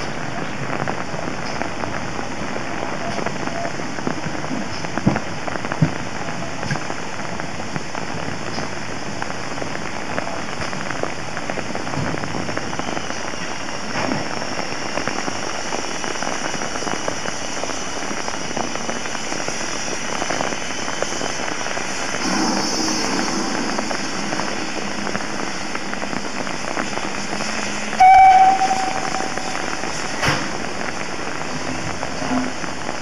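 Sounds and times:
heavy rain falling: 0:00.0 - 0:33.0
faint high tone: 0:22.2 - 0:30.2.

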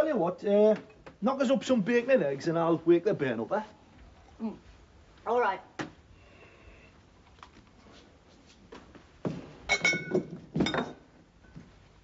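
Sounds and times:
clinks of pot and lid: 0:09.7 - 0:11.0.

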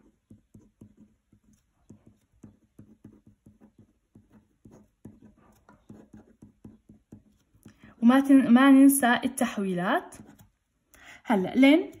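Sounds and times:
pen writing on paper: 0:00.0 - 0:07.8, 0:10.2 - 0:10.6.

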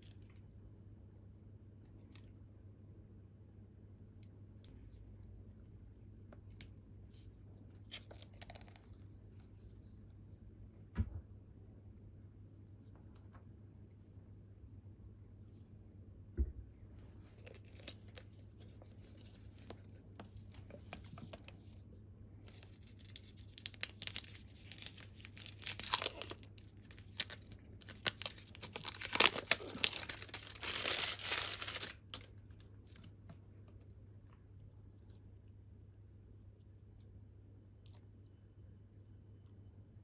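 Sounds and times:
plastic label tearing and crinkling: 0:22.5 - 0:32.6.

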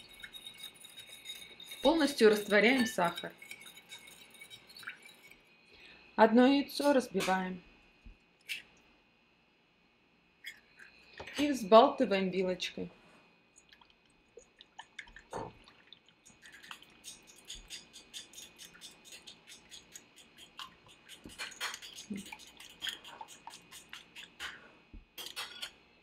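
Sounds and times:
fork beating egg in glass bowl: 0:00.0 - 0:05.5, 0:16.1 - 0:24.6.

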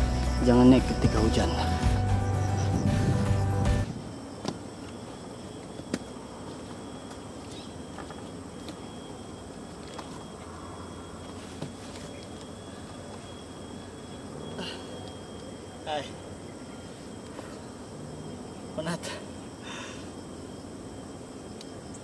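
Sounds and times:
insects chirping: 0:00.0 - 0:22.0.

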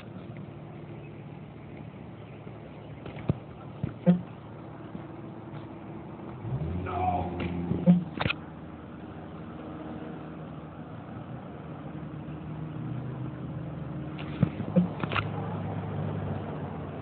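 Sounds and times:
low engine hum: 0:00.0 - 0:17.0
sharp knocks: 0:03.2 - 0:04.3.

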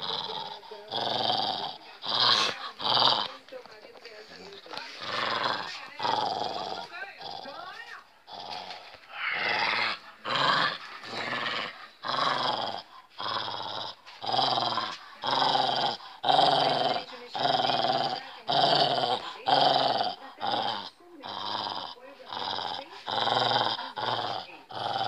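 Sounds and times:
small dog play growling: 0:00.0 - 0:25.0.

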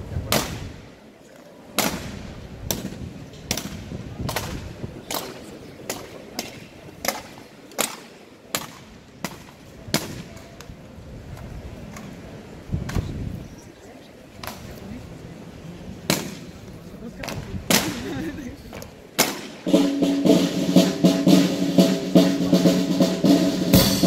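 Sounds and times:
sharp cracks: 0:19.2 - 0:19.7.

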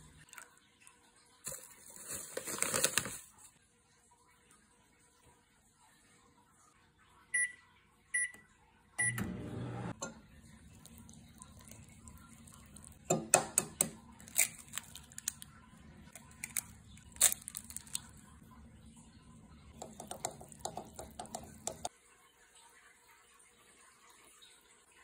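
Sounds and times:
microwave keypad beeping: 0:07.4 - 0:07.6, 0:08.2 - 0:08.4, 0:09.0 - 0:09.9
microwave humming: 0:09.0 - 0:21.9
egg cracking on bowl: 0:16.1 - 0:18.2, 0:19.8 - 0:21.9.

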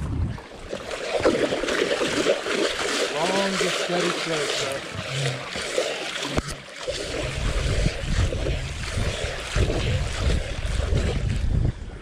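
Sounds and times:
wind rumbling on microphone: 0:00.0 - 0:03.0, 0:06.4 - 0:12.0
fish thrashing in water: 0:00.5 - 0:11.6.

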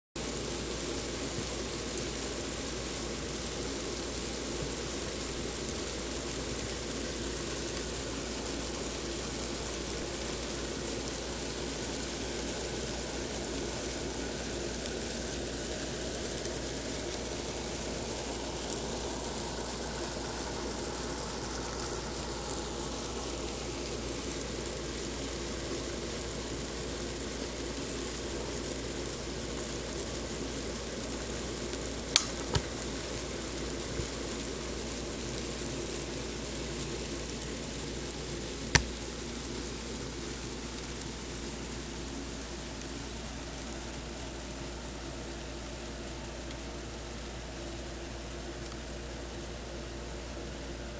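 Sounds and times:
mealworms crawling rustle: 0:00.2 - 0:50.9
sharp clicks: 0:32.2 - 0:32.7.

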